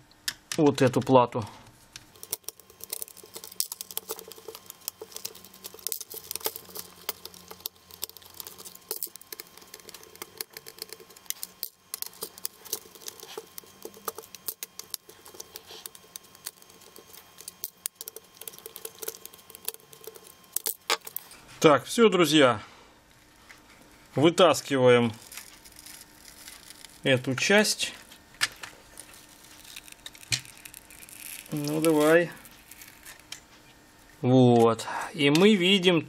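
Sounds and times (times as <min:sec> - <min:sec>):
screwdriver clicking and scratching: 0:02.1 - 0:21.3, 0:28.4 - 0:33.4.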